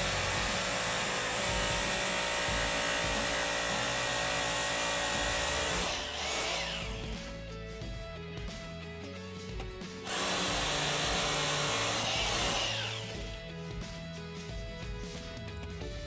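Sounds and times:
hammer drill boring into concrete: 0:00.0 - 0:07.4, 0:10.0 - 0:13.4.

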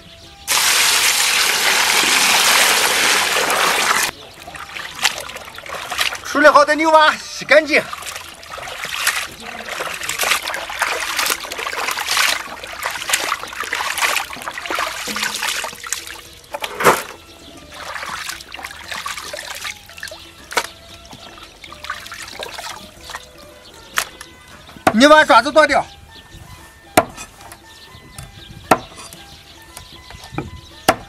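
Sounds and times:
water splashing in a plastic basin: 0:00.5 - 0:25.0.

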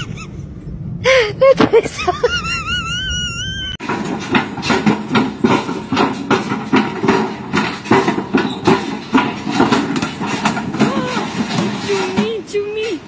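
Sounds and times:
escalator steps clanking: 0:03.8 - 0:13.0.

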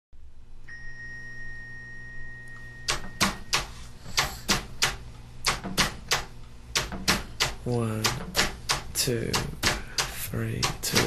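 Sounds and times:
faint high whine: 0:00.2 - 0:04.0
body percussion hits: 0:02.9 - 0:11.0.

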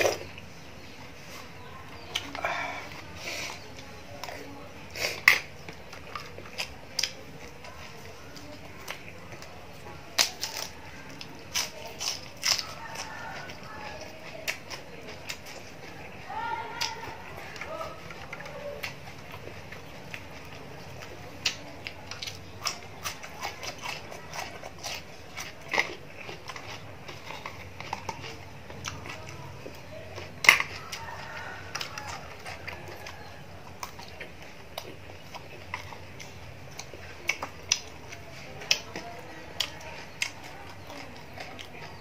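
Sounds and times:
person chewing and crunching food: 0:00.0 - 0:42.0.

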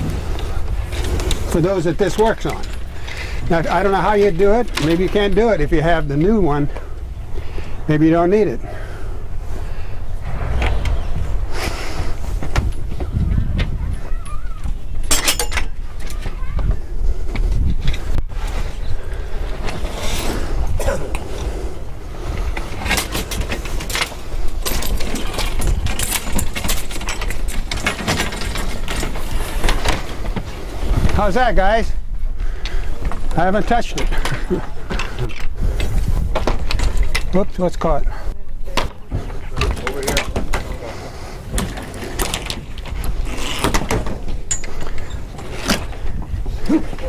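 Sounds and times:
steady low rumble: 0:00.0 - 0:14.1
low wind rumble on microphone: 0:00.0 - 0:37.4, 0:38.1 - 0:47.0
metal clinks and rattles of rigging: 0:00.8 - 0:06.4, 0:15.0 - 0:16.2, 0:22.7 - 0:30.3, 0:41.5 - 0:47.0
rigging hardware knocks and rattles: 0:22.8 - 0:31.2, 0:33.0 - 0:37.5, 0:41.5 - 0:46.4.

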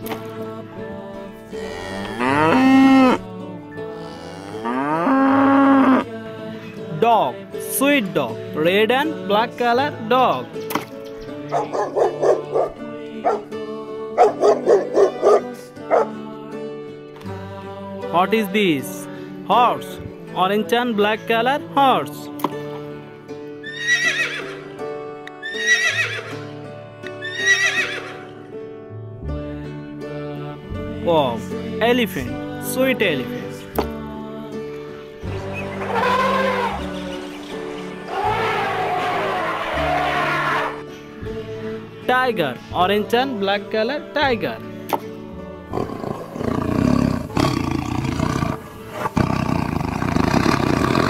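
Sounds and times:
background music: 0:00.0 - 0:51.0
horse whinnying: 0:23.6 - 0:24.7, 0:25.4 - 0:26.4, 0:27.2 - 0:28.3, 0:35.8 - 0:36.9, 0:38.1 - 0:40.8
tiger roaring and growling: 0:45.7 - 0:51.0.

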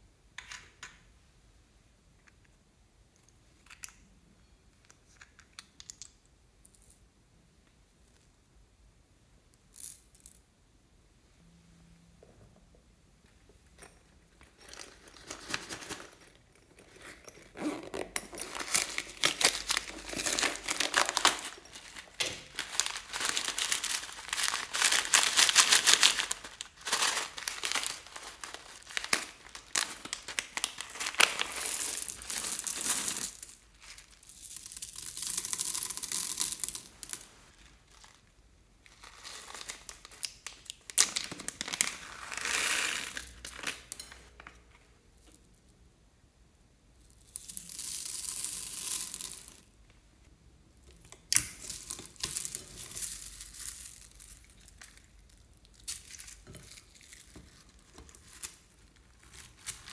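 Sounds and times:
plastic bags crinkling and tearing: 0:18.5 - 0:33.4.

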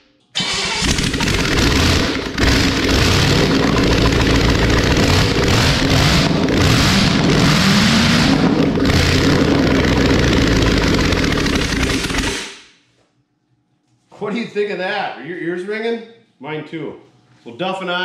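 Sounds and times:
loud engine revving: 0:00.8 - 0:12.5.

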